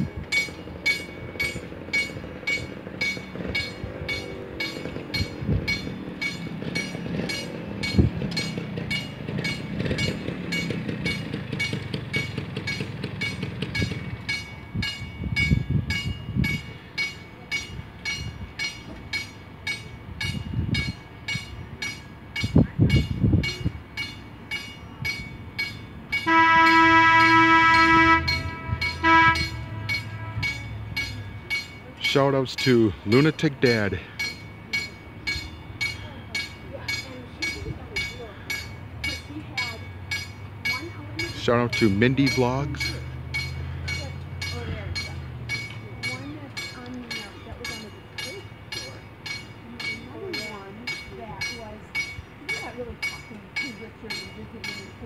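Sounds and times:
low traffic rumble: 0:00.0 - 0:55.0
warning bell ringing: 0:00.0 - 0:55.0
loud horn blast: 0:26.2 - 0:30.8.

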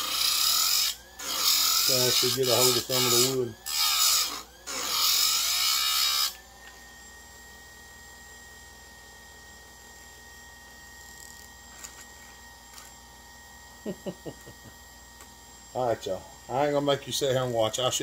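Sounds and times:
grinding wheel on saw chain: 0:00.0 - 0:06.4
grinder motor whine: 0:00.0 - 0:18.0.

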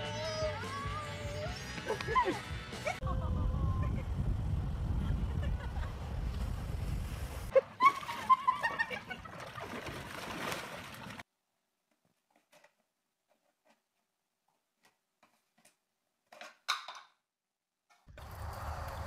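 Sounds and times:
outdoor wind: 0:01.4 - 0:07.6, 0:17.9 - 0:19.0
water noise: 0:03.1 - 0:11.2.

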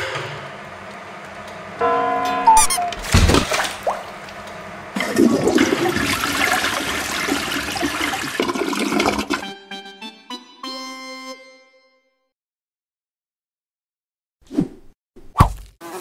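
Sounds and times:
short pitched notes: 0:02.2 - 0:03.2
toilet flushing: 0:03.0 - 0:09.5.

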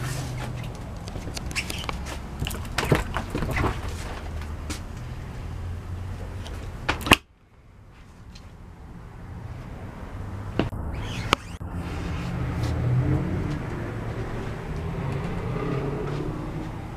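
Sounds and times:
camera handling rumble: 0:00.2 - 0:04.5.

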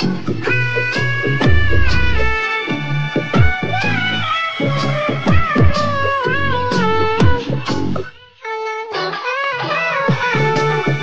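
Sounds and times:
song with bass and drums: 0:00.0 - 0:04.0.

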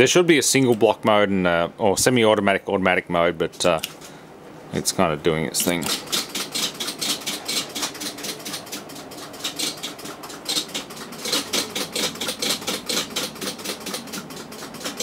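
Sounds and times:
control cabinet clicking steadily: 0:04.8 - 0:15.0.

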